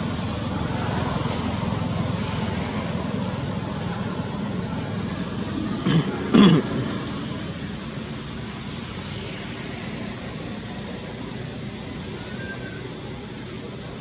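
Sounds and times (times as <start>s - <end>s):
background rush of noise: 0.0s - 14.0s
low cough-like vocal bursts: 5.8s - 7.0s.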